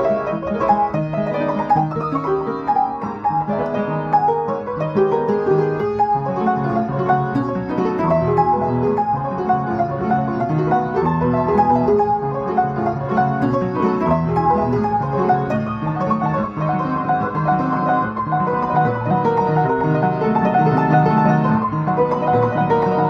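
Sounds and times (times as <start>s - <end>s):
solo classical piano: 0.0s - 23.0s.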